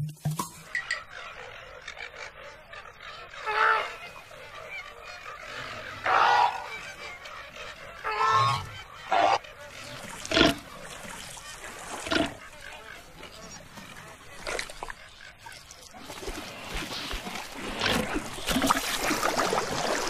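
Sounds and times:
flamingos honking: 0.6s - 15.6s.

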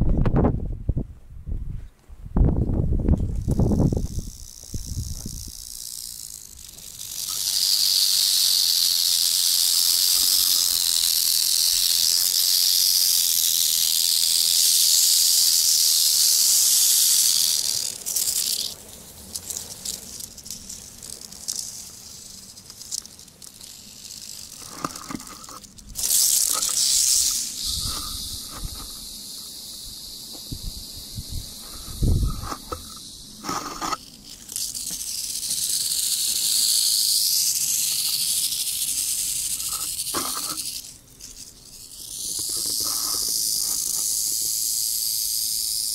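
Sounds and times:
rattlesnake tail rattling: 3.1s - 45.9s.

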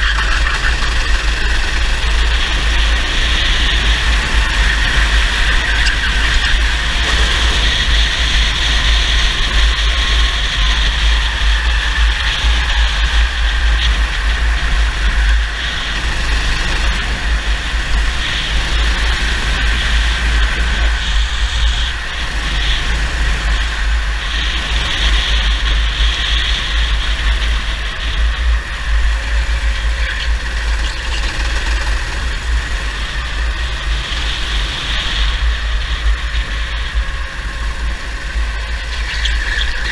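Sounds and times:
go-kart engine racing: 0.0s - 39.9s
wind rumble on microphone: 0.0s - 39.9s.

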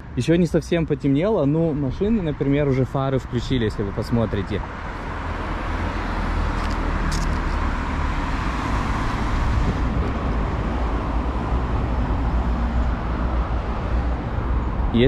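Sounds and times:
car tyres and engine rumble: 0.0s - 15.0s.

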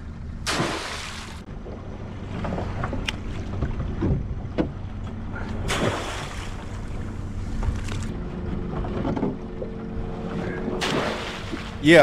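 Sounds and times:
splash of water: 0.4s - 1.5s, 5.6s - 6.9s, 10.8s - 11.8s
boat motor running: 1.1s - 12.0s.

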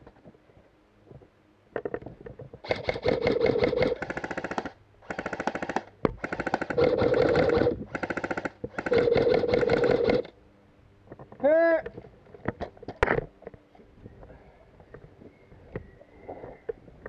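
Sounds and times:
airsoft rifle bursts: 2.6s - 10.3s.

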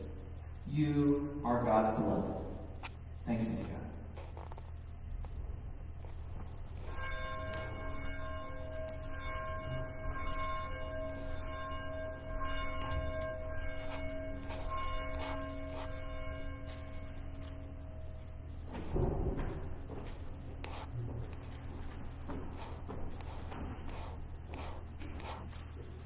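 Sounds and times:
bell ringing: 6.6s - 19.0s.

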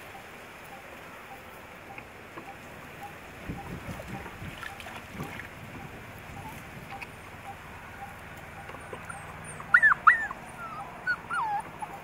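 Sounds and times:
steady low hiss: 0.0s - 12.0s
dog whimpering: 8.0s - 12.0s.

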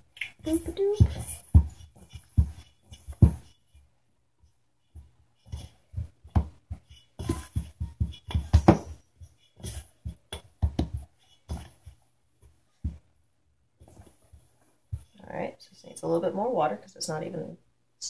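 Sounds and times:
hands knocking and scraping metal bowl: 5.5s - 11.8s.

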